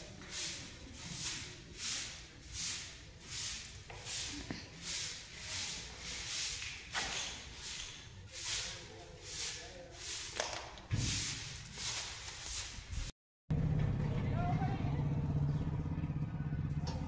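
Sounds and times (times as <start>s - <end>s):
broom sweeping concrete floor: 0.0s - 13.1s.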